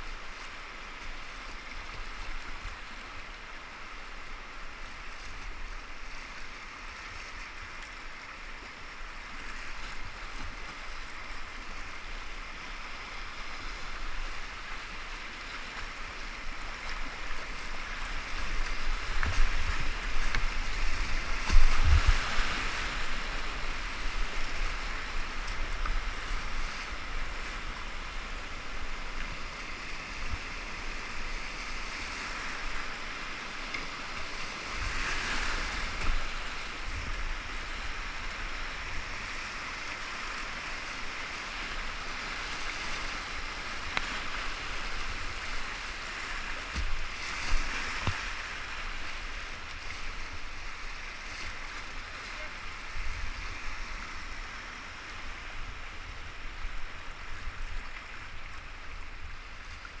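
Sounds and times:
whitewater rushing: 0.0s - 60.0s
splashes and knocks: 18.9s - 22.5s, 46.6s - 48.4s.

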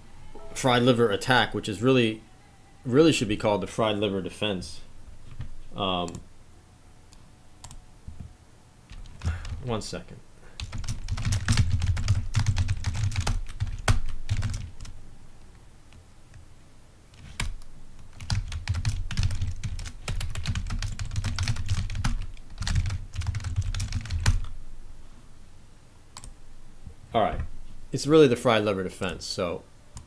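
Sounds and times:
typing on computer keyboard: 10.6s - 14.9s, 17.2s - 24.5s.

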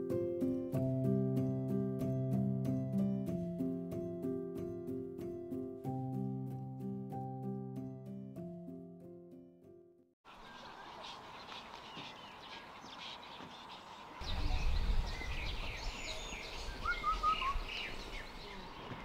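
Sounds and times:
small birds chirping: 10.3s - 19.0s.

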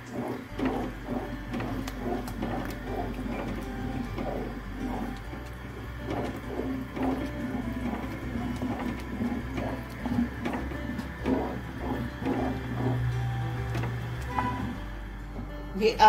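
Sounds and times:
spoon scraping metal pot: 0.0s - 14.8s.

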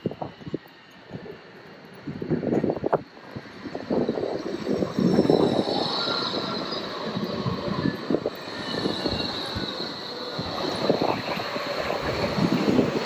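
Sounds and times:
tram wheels rumbling on track: 0.0s - 13.0s
wheel on rail squeal: 2.6s - 13.0s.

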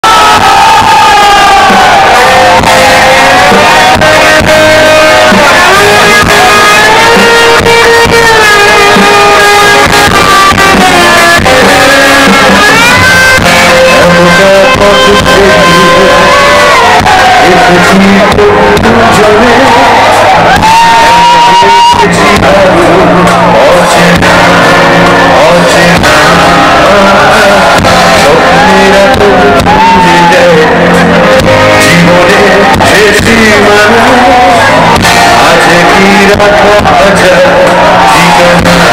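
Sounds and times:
live rock band playing: 0.0s - 38.9s
man singing into a microphone: 0.0s - 38.9s.

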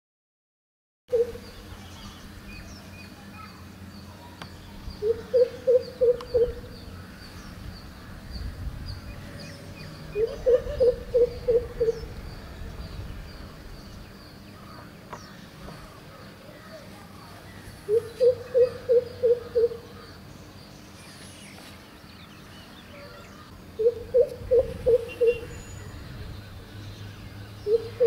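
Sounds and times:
bird calling low notes: 1.1s - 2.2s, 5.0s - 8.2s, 9.0s - 20.2s, 22.9s - 28.0s.

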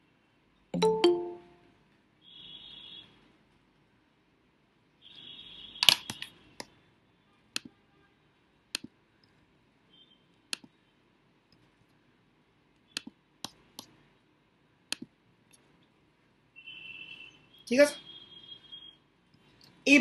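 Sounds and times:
computer mouse clicks: 8.7s - 9.4s, 12.8s - 13.9s, 14.9s - 15.6s.

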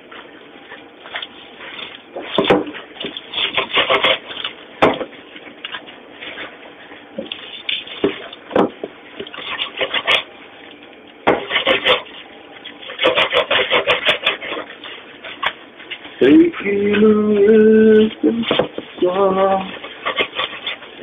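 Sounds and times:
person singing: 16.2s - 19.8s.

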